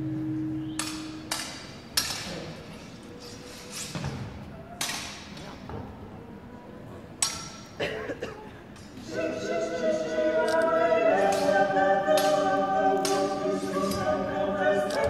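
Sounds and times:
swords clashing: 0:07.2 - 0:07.7
choir singing a cappella: 0:09.0 - 0:15.0.

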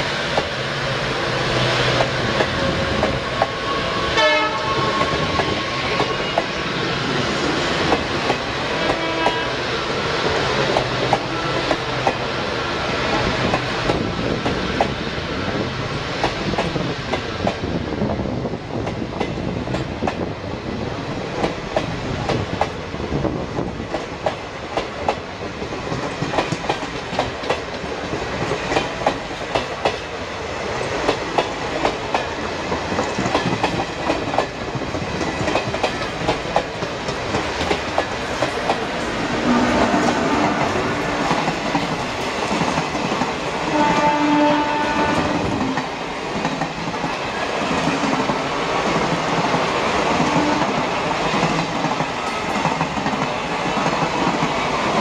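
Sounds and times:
locomotive horn: 0:04.0 - 0:06.3, 0:08.8 - 0:09.6, 0:39.4 - 0:41.1, 0:43.6 - 0:45.5, 0:50.3 - 0:50.8
train wheels clicking over rail joints: 0:07.4 - 0:09.4, 0:10.2 - 0:12.4, 0:13.0 - 0:17.8, 0:23.6 - 0:44.1.

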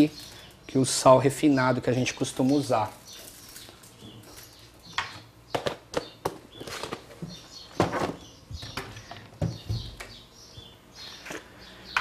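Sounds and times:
cupboard clicks and knocks: 0:07.8 - 0:10.2.

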